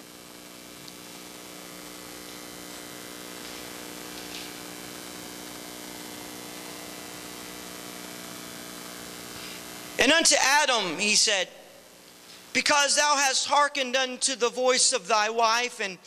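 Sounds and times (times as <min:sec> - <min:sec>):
electrical mains hum: 0:00.0 - 0:16.0.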